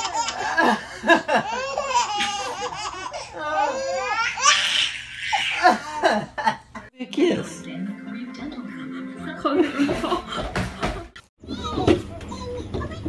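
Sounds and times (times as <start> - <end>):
baby laughing: 0.0 - 6.3.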